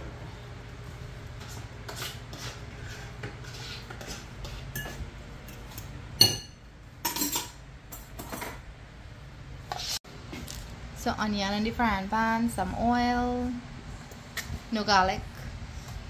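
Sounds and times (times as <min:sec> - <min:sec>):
clink on glass bowl: 0:06.2 - 0:07.5.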